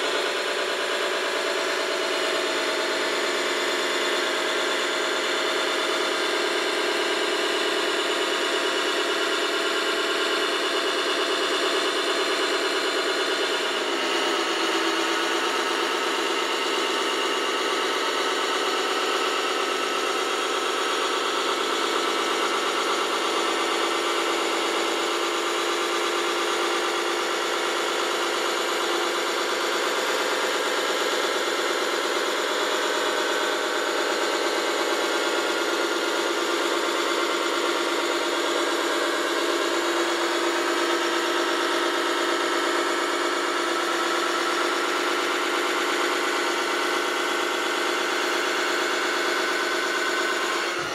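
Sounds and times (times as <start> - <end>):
model crane engine running: 0.0 - 50.9.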